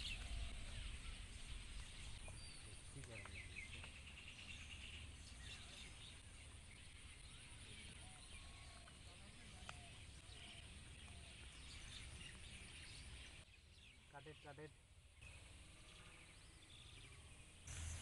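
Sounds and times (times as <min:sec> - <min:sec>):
distant bird chirps: 0:00.0 - 0:18.0.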